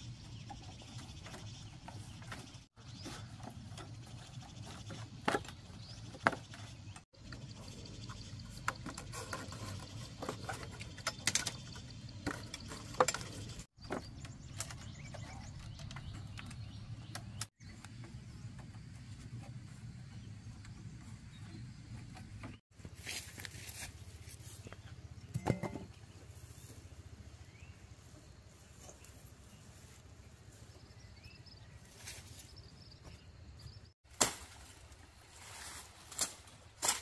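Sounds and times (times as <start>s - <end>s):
bamboo strips clicking and rustling: 8.1s - 18.0s, 34.2s - 37.0s.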